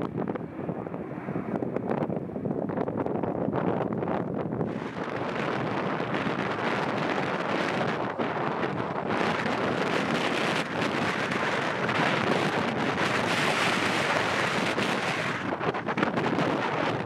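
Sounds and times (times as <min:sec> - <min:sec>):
jet engines roaring: 0:00.0 - 0:17.0
wind buffeting microphone: 0:00.0 - 0:17.0.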